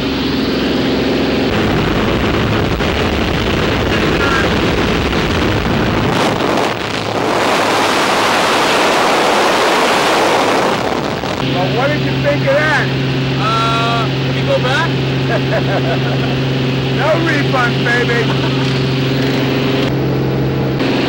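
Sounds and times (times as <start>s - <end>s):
plane engine hum: 0.0s - 21.0s
wind rushing: 0.4s - 15.2s.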